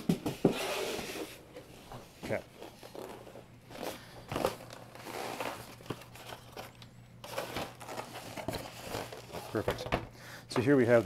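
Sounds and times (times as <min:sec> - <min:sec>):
packaging crinkling and rustling: 0:02.6 - 0:09.9.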